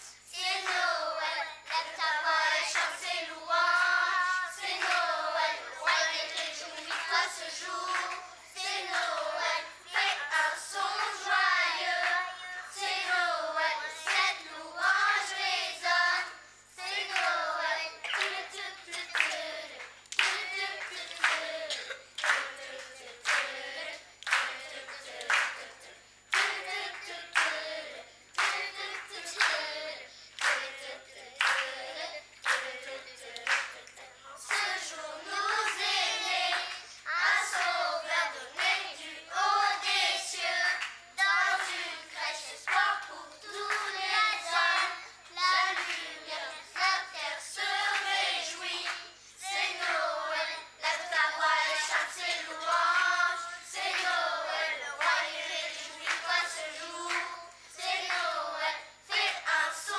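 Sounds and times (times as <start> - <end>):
children's choir singing: 0.0 - 59.9
hand claps: 4.8 - 5.1, 7.9 - 8.2, 18.0 - 23.5, 24.2 - 25.7, 26.3 - 27.7, 28.3 - 29.6, 30.4 - 30.7, 31.4 - 31.7, 32.4 - 34.8, 42.7 - 44.0, 44.7 - 46.1, 51.9 - 53.2, 53.9 - 54.2, 56.0 - 57.4, 58.0 - 58.2.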